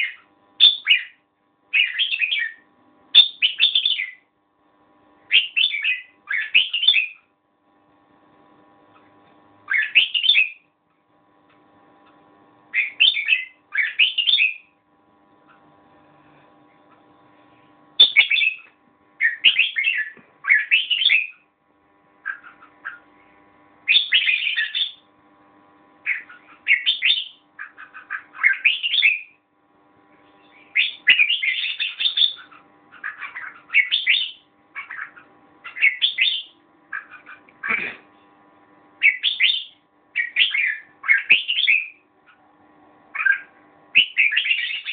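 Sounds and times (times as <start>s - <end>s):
bird singing warbling phrases: 0.0s - 4.3s, 5.3s - 7.3s, 9.7s - 10.7s, 12.7s - 14.7s, 18.0s - 21.5s, 22.2s - 23.0s, 23.9s - 25.1s, 26.0s - 29.4s, 30.4s - 38.0s, 39.0s - 42.4s, 43.1s - 44.9s.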